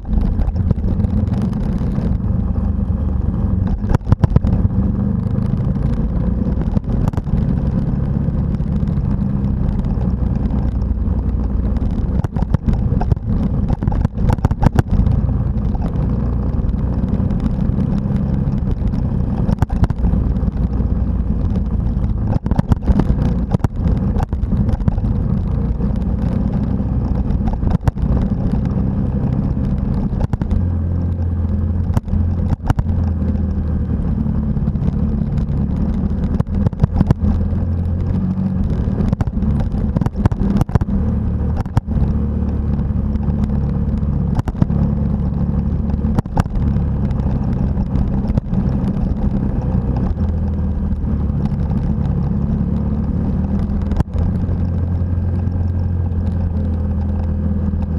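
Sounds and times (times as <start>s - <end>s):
motorcycle engine running: 0.0s - 57.9s.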